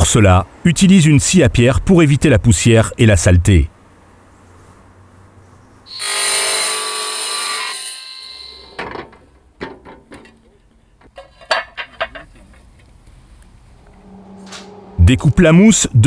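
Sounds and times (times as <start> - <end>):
wet stone saw cutting tile: 5.9 - 8.8
tiles clacking: 11.0 - 12.9.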